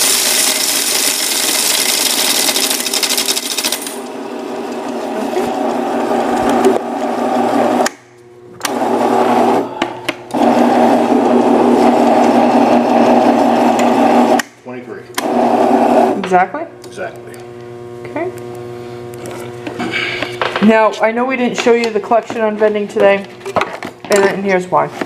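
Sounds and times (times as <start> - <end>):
coins rattling through machine: 0.0 - 4.0
coin counting machine motor whir: 0.0 - 7.8.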